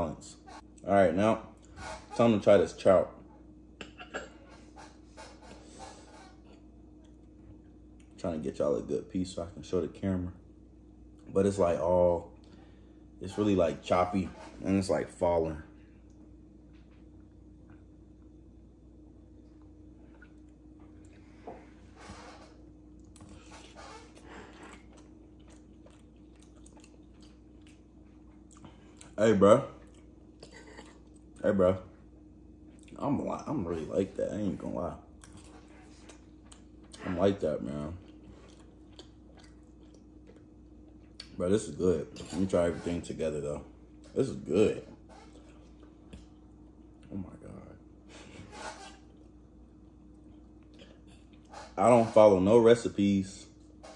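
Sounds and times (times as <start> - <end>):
person chewing: 22.9 - 29.2, 29.8 - 31.4, 32.6 - 33.0, 35.1 - 37.0, 38.0 - 41.3, 45.2 - 47.1.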